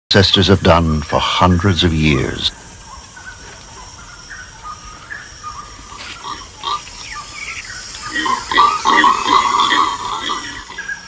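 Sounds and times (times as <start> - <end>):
monkeys squeaking and chirping: 2.5 - 11.0.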